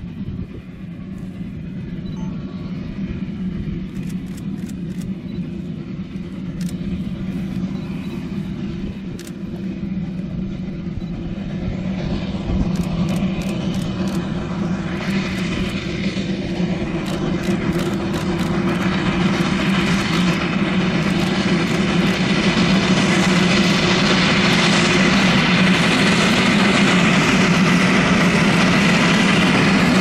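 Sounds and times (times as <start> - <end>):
steam train low rumble: 0.0 - 30.0
sharp clicks: 12.8 - 14.3, 17.0 - 20.4.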